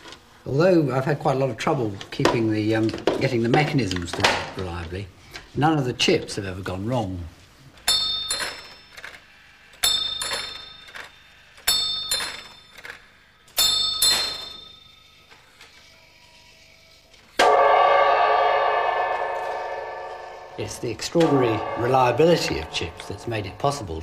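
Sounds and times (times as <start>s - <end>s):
gong struck: 17.4s - 24.0s.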